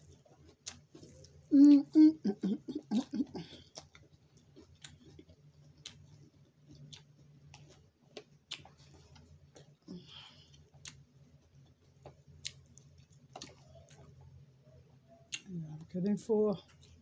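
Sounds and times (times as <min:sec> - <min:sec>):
faint chewing: 0:00.0 - 0:16.0, 0:16.6 - 0:17.0
steady low hum: 0:00.0 - 0:17.0.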